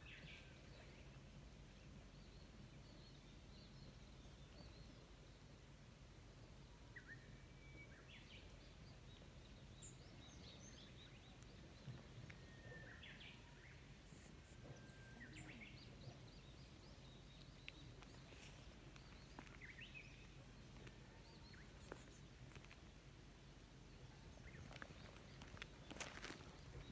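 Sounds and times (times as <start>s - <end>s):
faint bird chirps: 6.8s - 22.7s.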